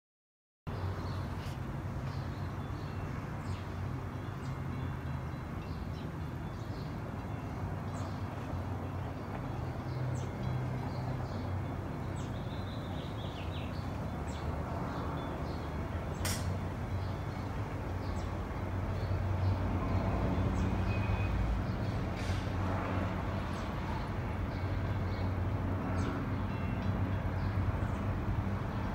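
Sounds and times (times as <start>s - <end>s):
distant traffic rumble: 0.7s - 28.9s
sharp click: 16.2s - 16.6s.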